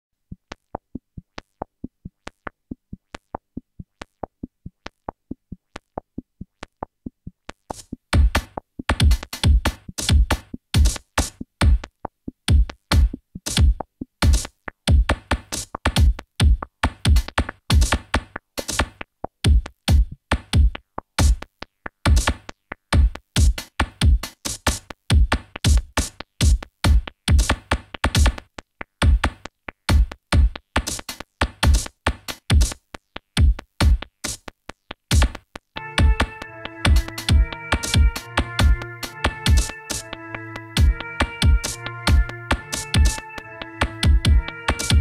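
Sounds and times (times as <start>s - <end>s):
deep bass drum machine hits: 43.8s - 45.0s.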